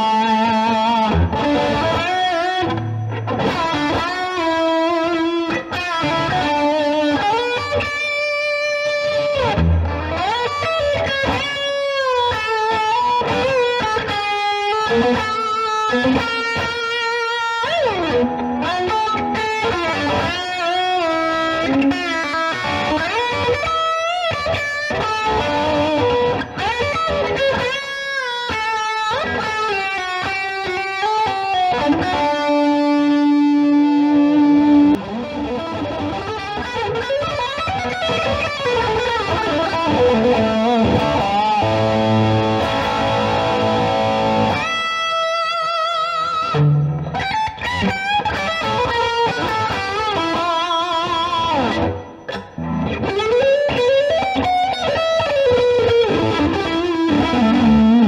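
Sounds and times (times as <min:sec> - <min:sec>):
electric guitar solo: 0:00.0 - 0:58.0.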